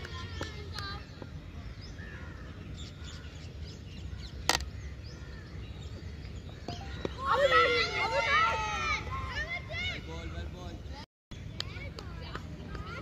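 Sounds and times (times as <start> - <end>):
outdoor ambience: 0.0 - 13.0.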